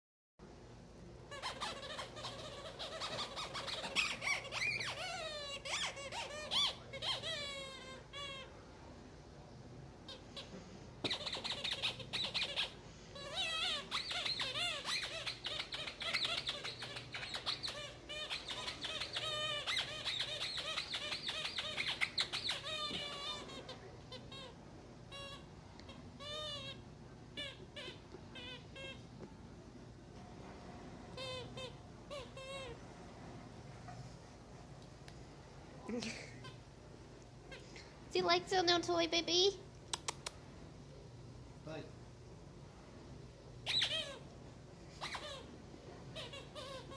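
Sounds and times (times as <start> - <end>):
squeaky rubber toy squeaking: 1.3 - 8.5, 10.1 - 26.8, 27.4 - 29.0, 31.2 - 32.8, 43.6 - 44.3, 44.9 - 46.9.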